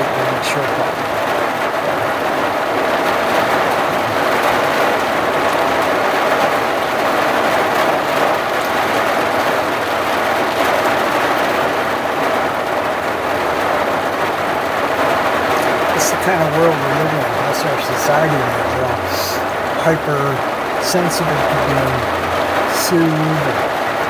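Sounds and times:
rain on a vehicle roof: 0.0s - 24.0s.

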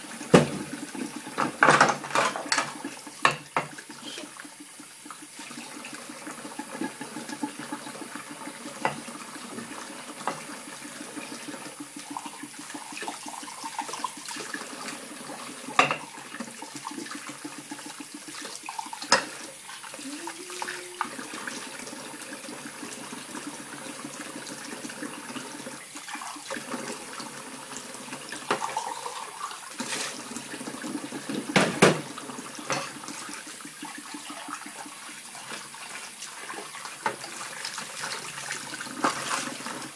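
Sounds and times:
tap running into sink: 0.3s - 3.8s, 28.4s - 28.8s, 31.2s - 33.2s
glassware and metal bowl clinking: 32.7s - 32.9s.

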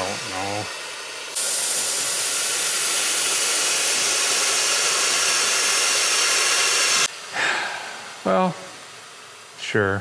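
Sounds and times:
compressed air hissing: 0.0s - 10.0s.

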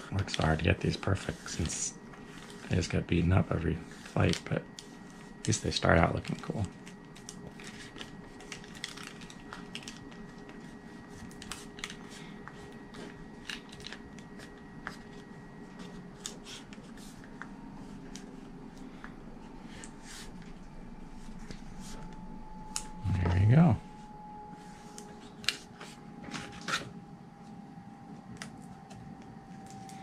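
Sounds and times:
faint steady hum: 0.0s - 30.0s
plastic crinkling and ticking: 4.2s - 12.1s, 13.0s - 18.3s.

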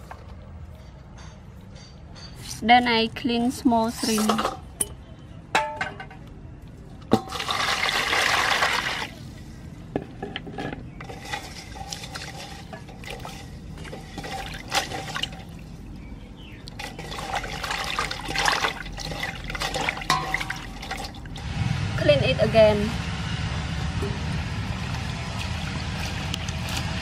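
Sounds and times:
water pouring into metal basin: 7.2s - 9.2s, 11.0s - 15.6s, 16.7s - 21.5s
hands sloshing in water: 16.7s - 21.2s.

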